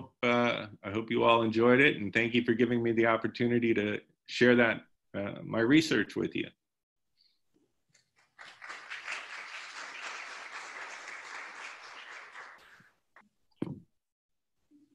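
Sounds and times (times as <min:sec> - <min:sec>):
audience applauding: 0:08.0 - 0:13.0
brief thump: 0:13.6 - 0:13.9.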